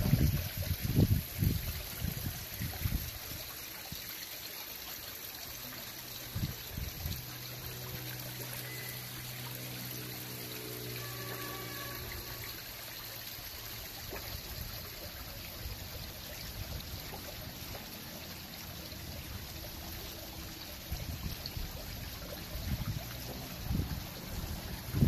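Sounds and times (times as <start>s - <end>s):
wind buffeting microphone: 0.0s - 3.1s
fountain water trickling: 0.0s - 25.0s.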